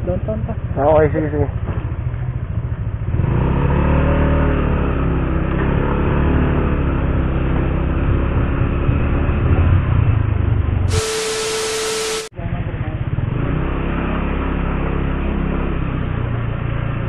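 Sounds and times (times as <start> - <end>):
motorcycle engine running: 8.4 - 12.3.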